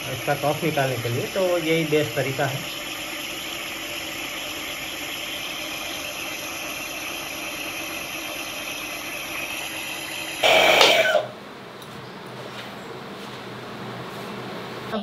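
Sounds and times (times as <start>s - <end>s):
nebulizer motor hum and hiss: 0.0s - 11.4s.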